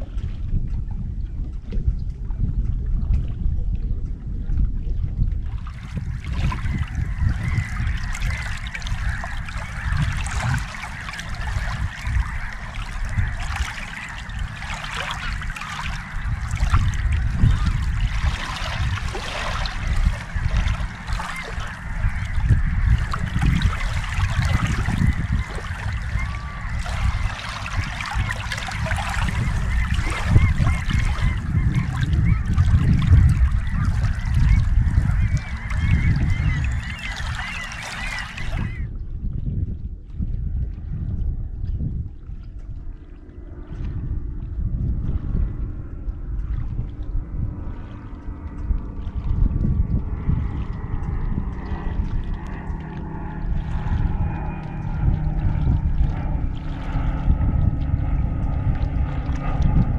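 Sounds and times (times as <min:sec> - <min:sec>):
water lapping against kayak: 0:00.0 - 0:59.9
wind buffeting microphone: 0:00.0 - 0:59.9
waterfowl calling: 0:06.1 - 0:38.9.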